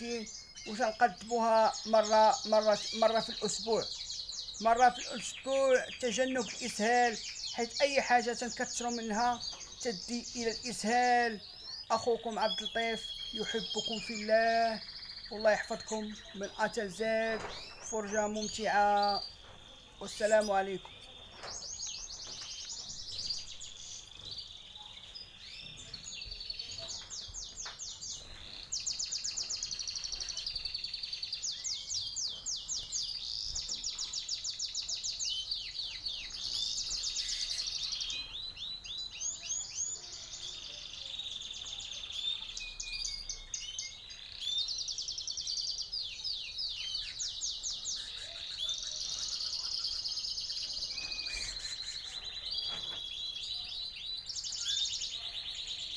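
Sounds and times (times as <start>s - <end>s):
canaries singing trills: 0.0s - 55.9s.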